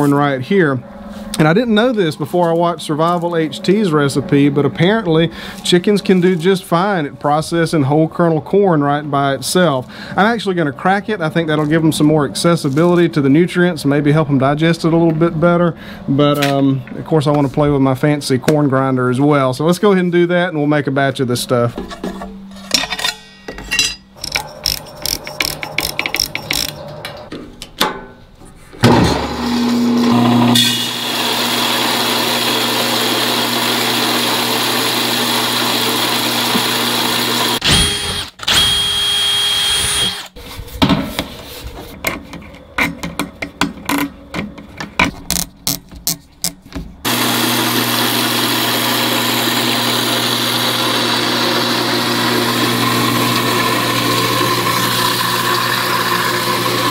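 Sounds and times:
parts clattering and clicking: 21.7 - 28.2
electric grain mill motor whining: 24.2 - 27.3, 29.1 - 40.4, 47.0 - 56.9
cordless drill running: 29.4 - 40.4, 47.1 - 56.9.

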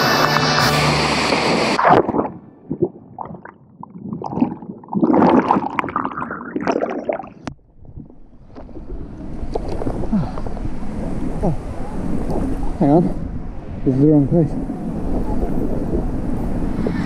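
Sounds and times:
muffled underwater bubbling: 1.8 - 12.6
wind on microphone: 7.7 - 17.0.

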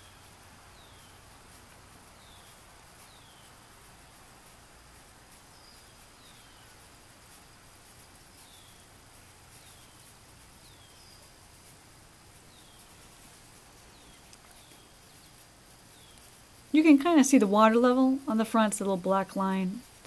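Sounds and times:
steady low hiss: 0.0 - 20.0
bird chirping: 13.8 - 16.3.

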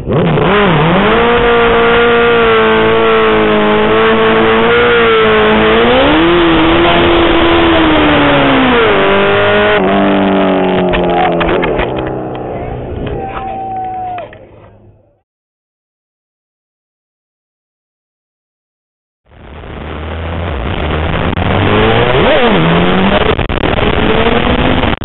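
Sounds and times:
motorcycle engine at high revs: 0.0 - 12.4, 19.8 - 25.0.

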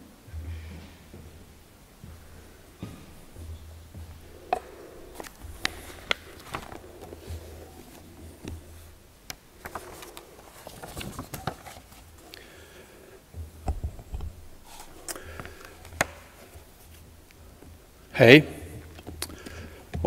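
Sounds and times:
clicks and taps handling tablet: 4.5 - 12.4.

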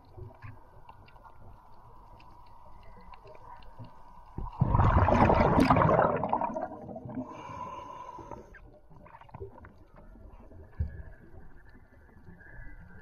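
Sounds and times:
underwater bubbling rush: 4.4 - 9.8.

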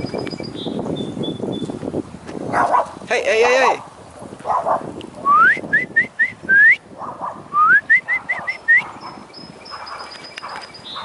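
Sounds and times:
person whistling: 5.3 - 6.8, 7.6 - 8.8.

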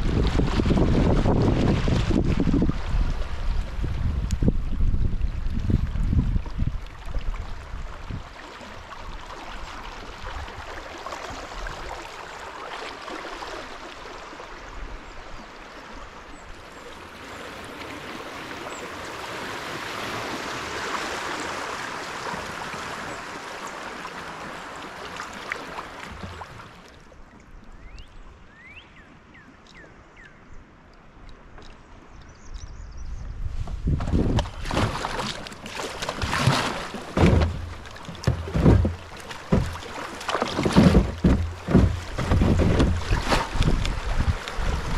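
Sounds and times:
river water rushing: 8.3 - 27.0, 34.7 - 44.9.

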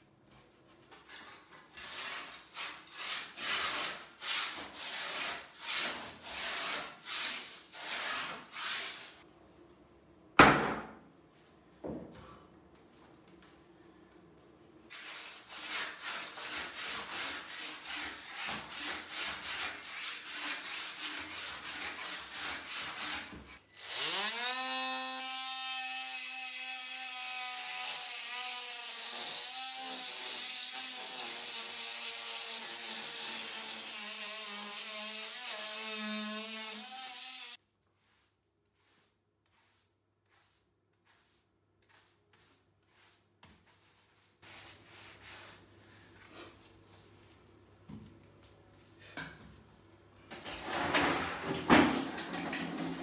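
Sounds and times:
handsaw sawing: 1.8 - 9.2, 15.4 - 37.6.

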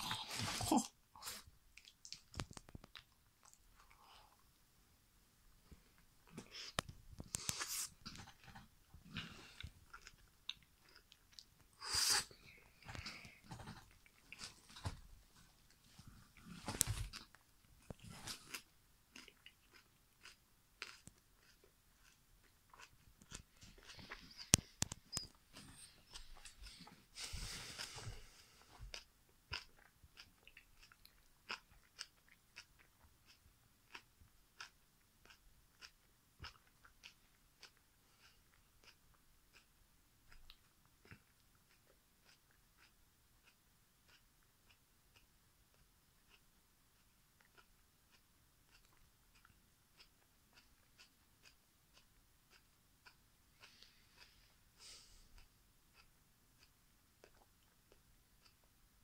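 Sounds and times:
wet mouth clicks: 1.8 - 4.0
person chewing banana: 6.2 - 14.9, 15.7 - 59.0.

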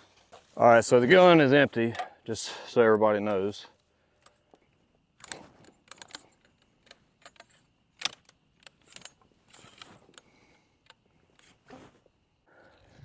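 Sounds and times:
metallic clicks and knocks: 5.2 - 11.5.

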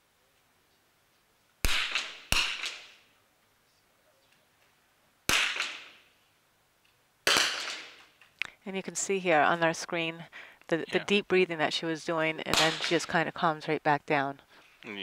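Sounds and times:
rifle shots echoing: 1.6 - 3.1, 5.3 - 6.1, 7.2 - 8.1, 12.5 - 13.1.

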